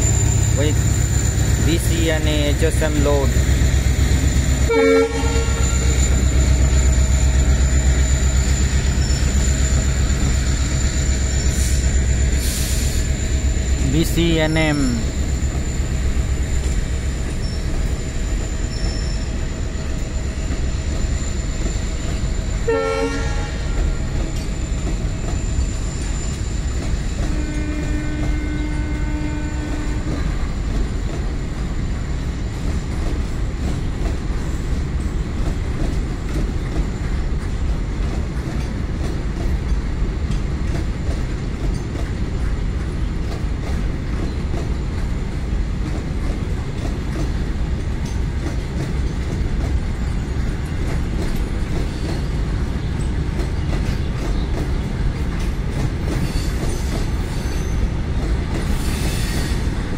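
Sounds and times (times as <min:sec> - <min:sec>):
train wheels rumbling on rails: 0:00.0 - 0:59.9
horn-like tone: 0:04.7 - 0:06.2, 0:22.7 - 0:23.6
brief tone: 0:04.7 - 0:11.0.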